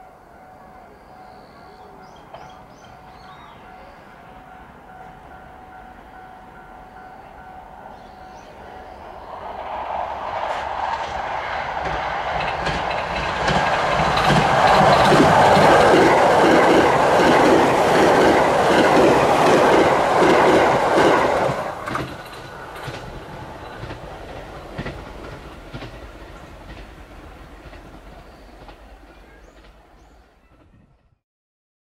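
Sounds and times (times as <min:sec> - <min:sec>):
train passing at high speed: 0:00.0 - 0:31.1
wheels clacking over rail joints: 0:10.7 - 0:30.2.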